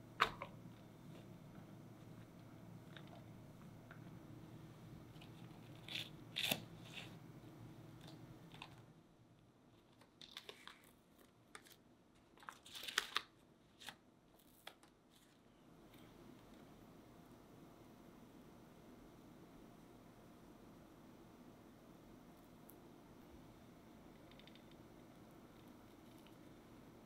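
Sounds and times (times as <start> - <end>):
baking paper crinkling: 9.8 - 15.5.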